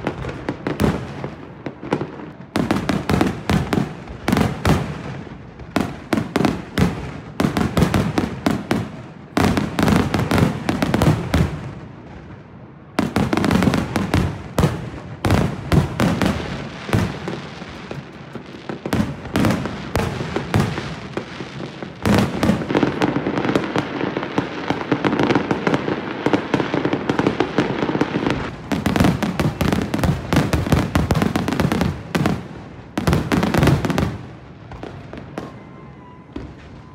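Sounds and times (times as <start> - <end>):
fireworks bursting and crackling: 0.0 - 36.9.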